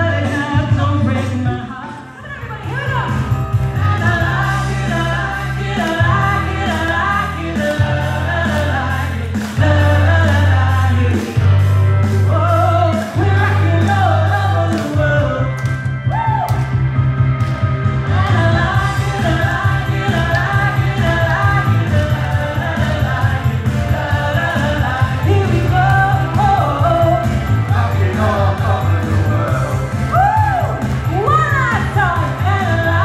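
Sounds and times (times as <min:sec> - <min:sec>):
backing track with bass: 0:00.0 - 0:33.0
guests singing along: 0:03.8 - 0:11.4, 0:18.1 - 0:30.8
woman singing pop: 0:24.1 - 0:27.5, 0:31.1 - 0:33.0.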